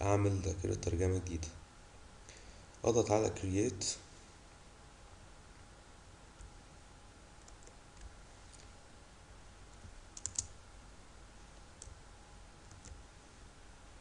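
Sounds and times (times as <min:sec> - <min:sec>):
faint electrical hum: 0:00.0 - 0:14.0
soft computer clicks: 0:07.4 - 0:08.7.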